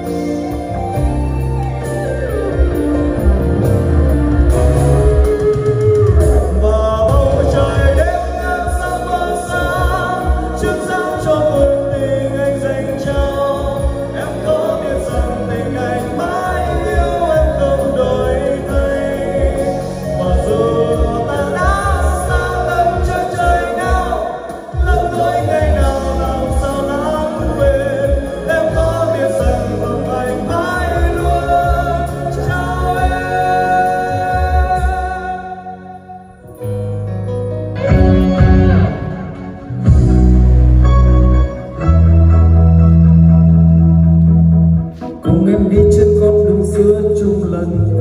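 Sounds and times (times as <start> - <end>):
man singing karaoke: 6.2 - 36.6, 45.0 - 48.0.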